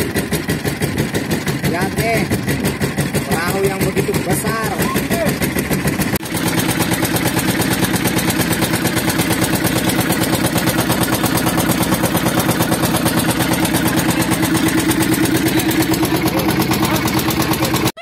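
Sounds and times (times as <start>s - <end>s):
boat engine running: 0.0s - 18.0s.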